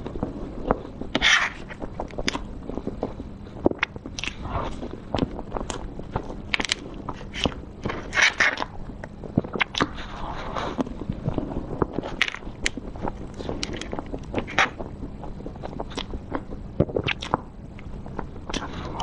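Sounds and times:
wet mouth clicks while chewing: 3.7s - 4.4s, 6.6s - 10.0s, 11.8s - 18.7s.

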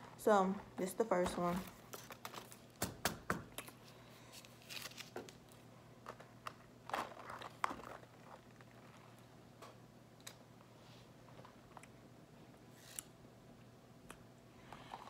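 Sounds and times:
plastic cup crinkling: 3.6s - 9.2s.

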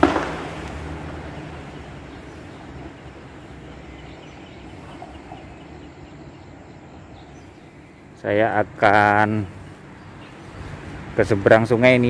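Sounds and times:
sharp knock: 0.0s - 0.5s
traffic hiss: 0.0s - 12.0s
vehicle engine hum: 0.0s - 12.0s.

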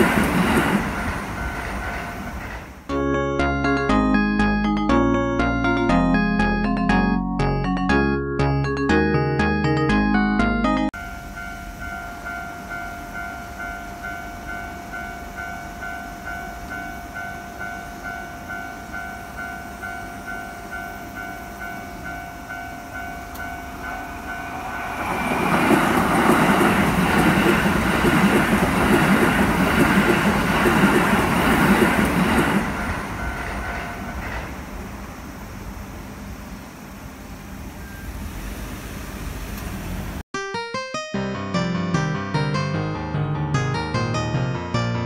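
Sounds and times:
train passing: 0.0s - 7.2s, 10.2s - 40.2s
level crossing bell ringing: 2.9s - 24.9s.

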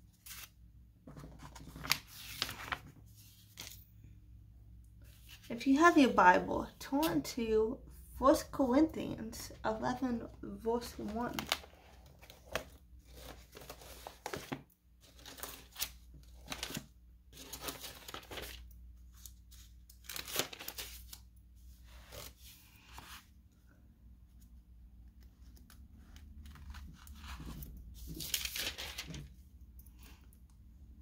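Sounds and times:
thin paper pages rustling: 0.2s - 3.8s, 10.8s - 23.4s, 25.4s - 29.4s.

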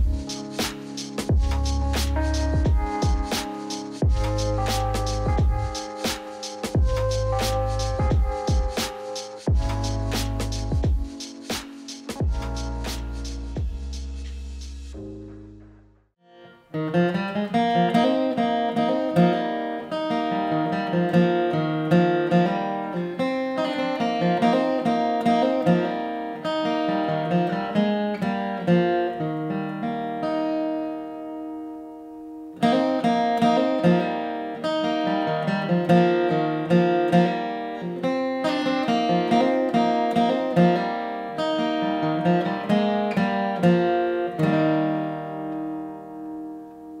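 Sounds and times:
acoustic guitar: 0.0s - 47.0s.

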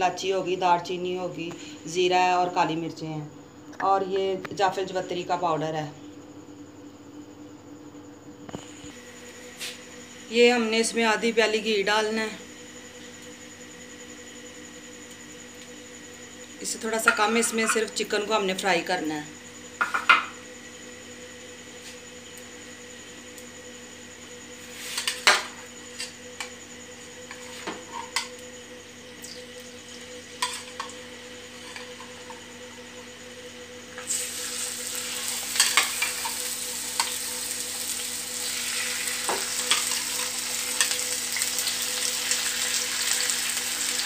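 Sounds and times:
faint steady hum: 0.0s - 44.0s
loud frying sizzle: 19.6s - 44.0s.

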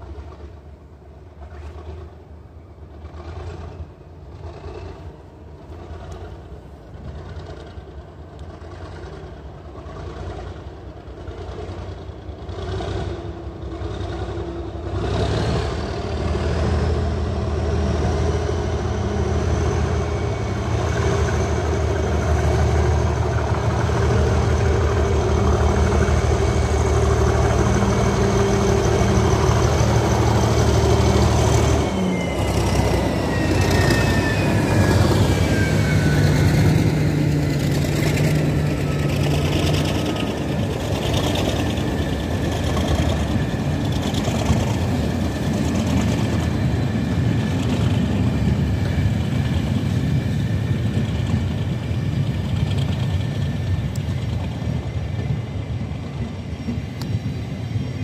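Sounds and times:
diesel locomotive engine: 0.0s - 58.0s
thin high whistle: 30.9s - 36.9s.

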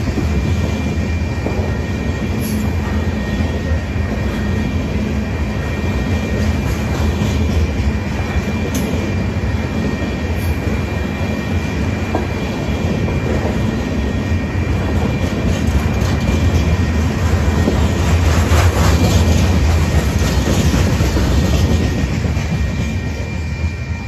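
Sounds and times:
freight train rumbling past: 0.0s - 24.0s
wheels clicking over rail joints: 15.1s - 22.9s.

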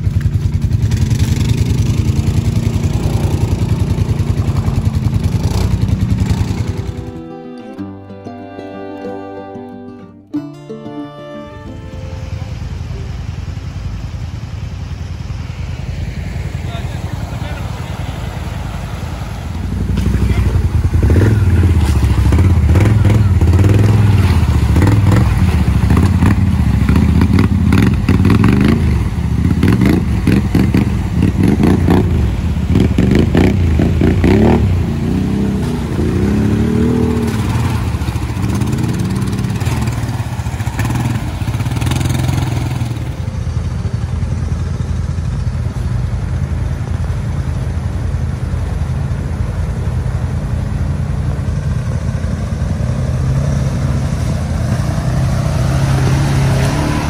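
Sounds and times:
wheels splashing through water: 0.0s - 7.4s, 11.7s - 57.0s
atv engines running: 0.0s - 9.9s, 11.1s - 57.0s.

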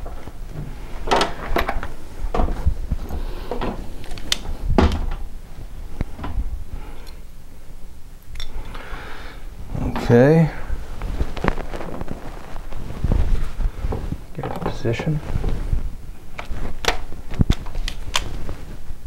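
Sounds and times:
ladder knocking and clunking: 0.0s - 5.4s, 6.0s - 6.5s.

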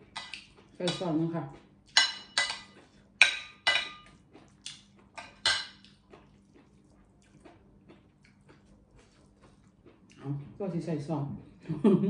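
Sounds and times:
metal spoon clinking on ceramic plate: 1.9s - 4.1s, 5.2s - 5.8s.

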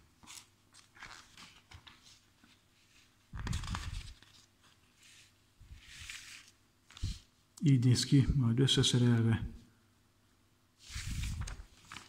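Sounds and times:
magazine pages rustling: 0.2s - 7.3s, 10.8s - 12.0s.

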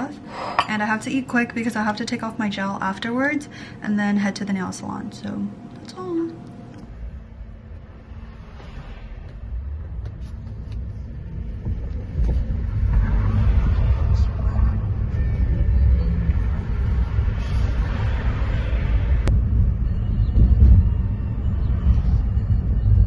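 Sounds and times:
car interior rumble: 9.2s - 23.0s.

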